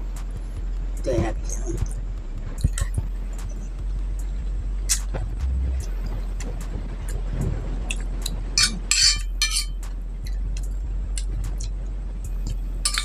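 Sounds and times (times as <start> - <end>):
metal spoon scraping glass plate: 8.6 - 9.8.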